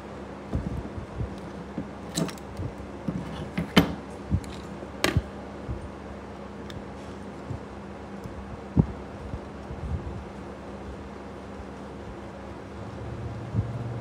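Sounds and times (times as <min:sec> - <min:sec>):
steady low hum: 0:00.0 - 0:14.0
circuit boards clicking and knocking: 0:03.6 - 0:05.3.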